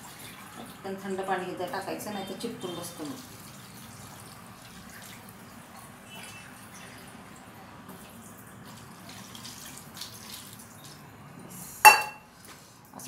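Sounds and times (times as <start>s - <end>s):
water pouring into colander: 0.0s - 11.0s
water trickling and dripping: 0.0s - 11.3s.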